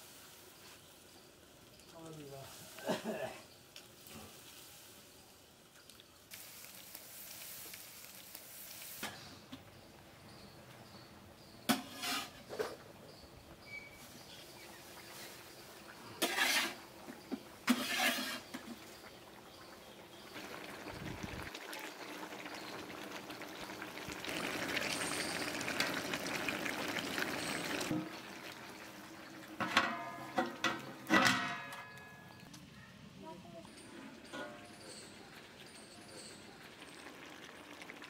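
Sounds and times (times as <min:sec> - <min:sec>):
metal spatula scraping a pot: 0:11.4 - 0:12.8, 0:16.1 - 0:18.8
metal lid clanking and ringing: 0:29.6 - 0:32.5, 0:33.7 - 0:35.1.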